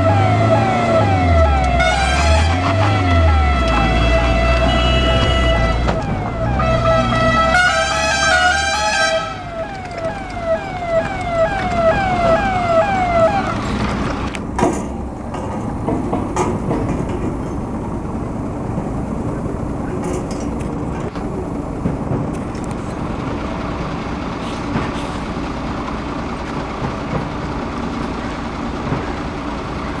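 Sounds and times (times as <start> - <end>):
ambulance siren: 0.0 - 14.3
vehicle road noise: 0.0 - 30.0.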